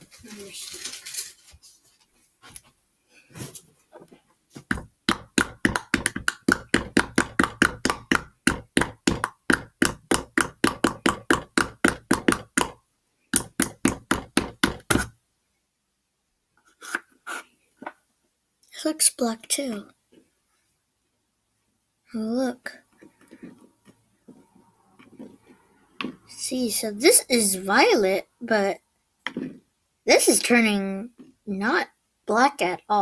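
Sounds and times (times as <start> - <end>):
wooden stick knocking inside jar: 4.7 - 12.8.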